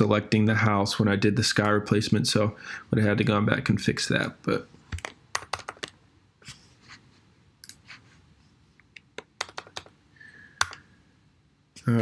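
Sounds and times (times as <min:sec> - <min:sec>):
computer mouse and keyboard clicks: 0:04.9 - 0:06.0, 0:08.9 - 0:10.0.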